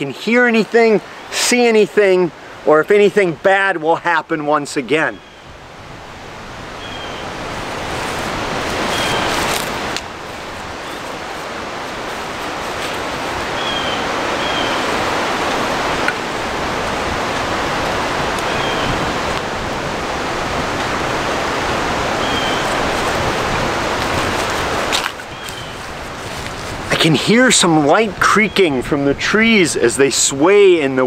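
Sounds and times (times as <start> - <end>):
wind rushing through trees: 0.0 - 31.0
creaking tree trunks: 6.0 - 28.6.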